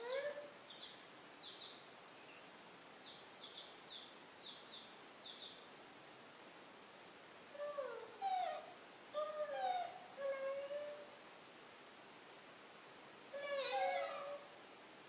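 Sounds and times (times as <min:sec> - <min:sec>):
baby monkey crying: 0:07.6 - 0:10.7, 0:13.4 - 0:14.5.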